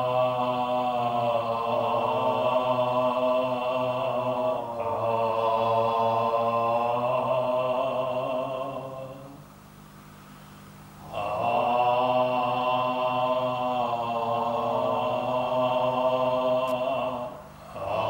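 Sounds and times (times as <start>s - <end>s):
men chanting: 0.0s - 9.3s, 11.0s - 18.0s.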